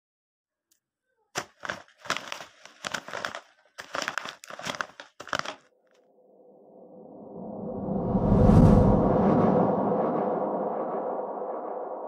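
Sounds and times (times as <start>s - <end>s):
dry leaves crunching: 1.4s - 5.6s
low rumbling: 6.1s - 12.0s.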